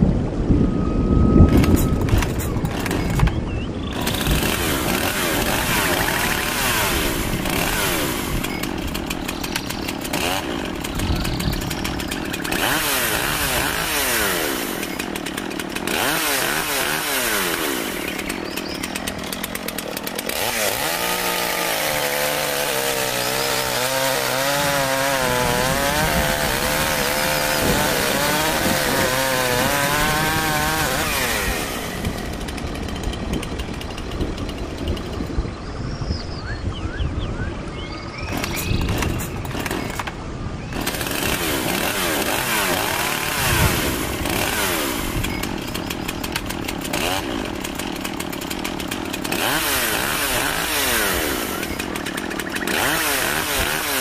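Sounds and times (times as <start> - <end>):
engine with wavering pitch: 0.0 - 4.0, 16.0 - 20.2
chainsaws revving and cutting: 1.5 - 35.6, 38.2 - 54.0.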